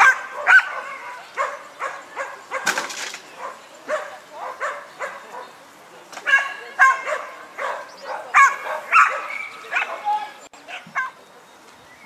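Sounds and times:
dog barking: 0.0 - 2.8, 3.4 - 5.6, 6.2 - 10.1, 10.7 - 11.2.

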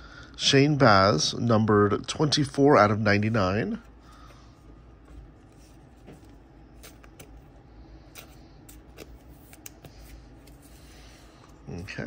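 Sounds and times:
cardboard cards rustling: 3.1 - 12.0
cards clicking: 8.1 - 10.6.

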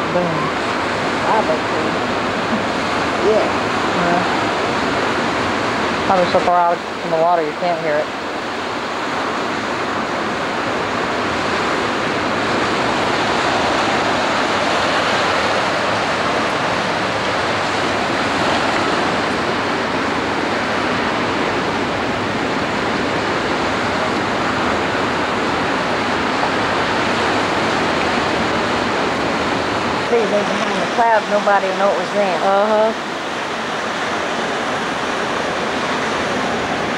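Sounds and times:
surf breaking on the beach: 0.0 - 36.9.

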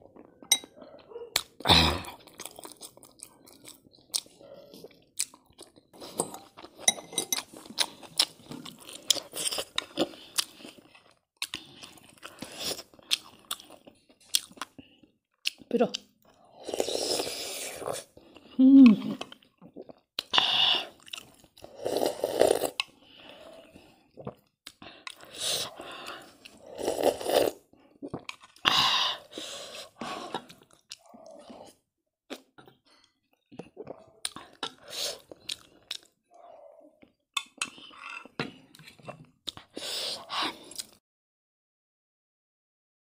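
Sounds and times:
slurping soup from a spoon: 16.4 - 18.4, 19.2 - 36.4, 37.4 - 41.0.

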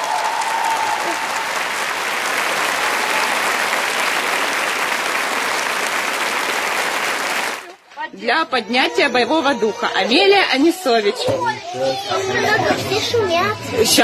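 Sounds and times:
crowd applauding: 0.0 - 7.8.

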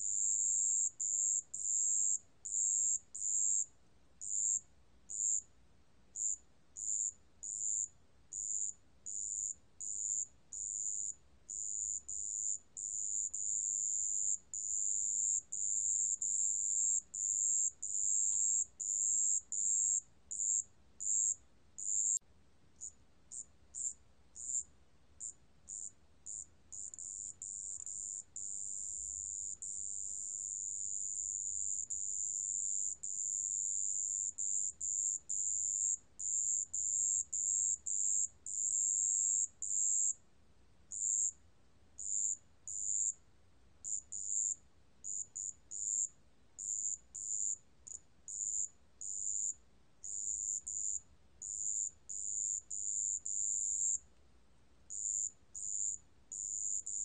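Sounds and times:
cricket chirping: 0.0 - 22.2, 22.8 - 40.2, 40.9 - 41.4, 42.0 - 43.2, 43.8 - 54.1, 54.9 - 57.0.

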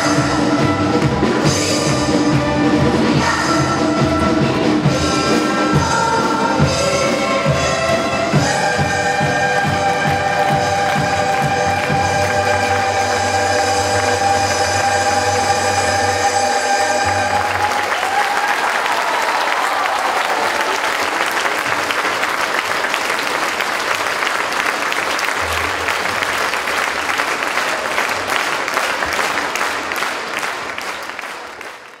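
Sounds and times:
audience applauding: 7.9 - 14.1, 16.9 - 32.0.

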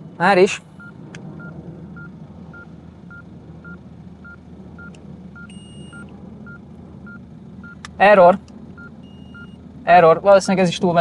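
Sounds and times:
patient monitor beeping: 0.8 - 7.8, 8.8 - 9.6
thermometer beep: 0.8 - 7.8, 8.8 - 9.6.

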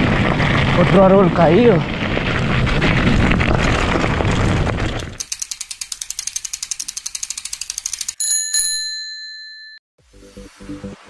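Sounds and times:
rough riding noise: 0.0 - 8.1
bike freehub ratcheting clicks: 5.0 - 8.2
bright ringing ding: 8.2 - 9.8.

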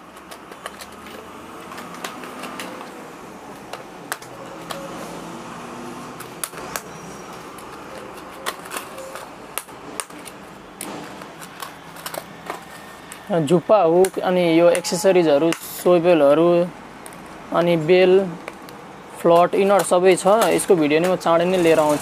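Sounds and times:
light clicks and taps of boxes: 0.1 - 4.9.

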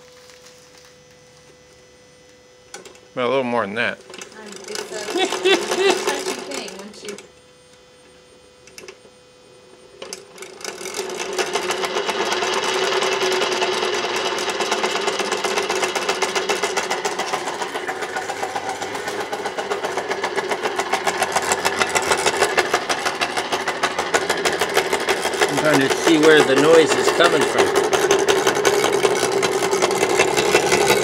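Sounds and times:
electric motor humming: 0.0 - 31.0
fast even rattle: 4.2 - 7.2, 10.1 - 31.0.

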